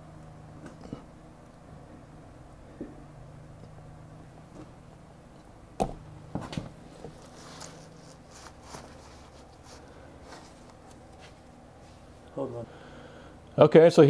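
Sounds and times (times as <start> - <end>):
faint low hum: 0.0 - 14.0
rubbing and scraping on rubber: 7.0 - 12.1.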